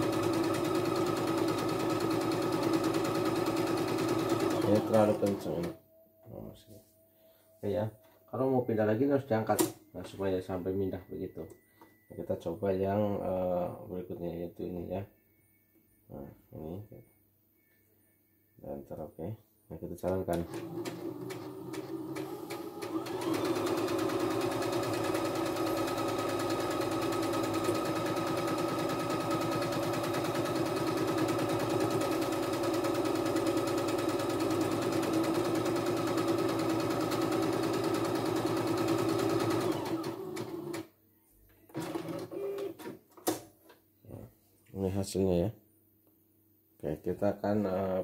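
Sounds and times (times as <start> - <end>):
sewing machine stitching: 0.0 - 5.8, 20.4 - 40.9, 41.7 - 42.9.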